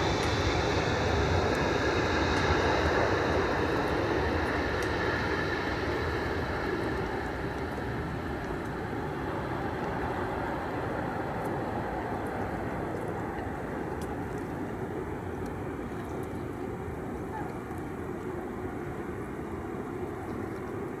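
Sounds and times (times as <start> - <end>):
jet engine rushing: 0.0 - 14.6.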